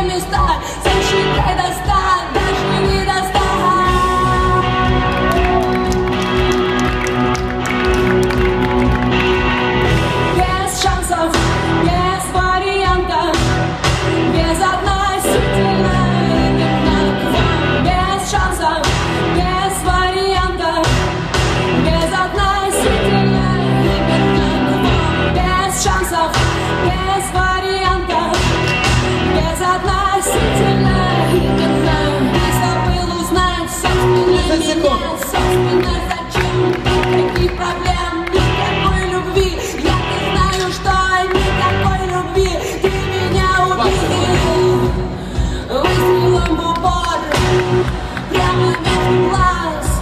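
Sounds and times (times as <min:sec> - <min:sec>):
pop song with singing: 0:00.0 - 0:50.0.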